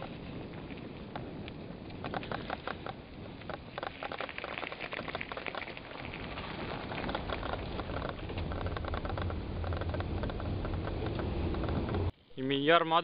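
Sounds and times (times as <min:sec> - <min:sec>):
bicycle clattering over wooden planks: 0:02.0 - 0:12.1
low rumble: 0:05.8 - 0:12.2.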